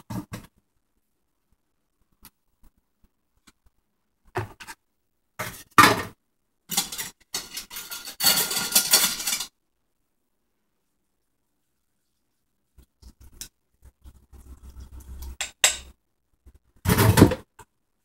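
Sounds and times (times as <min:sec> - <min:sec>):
metal bowl and utensils clattering: 0:05.4 - 0:09.6, 0:14.6 - 0:16.0.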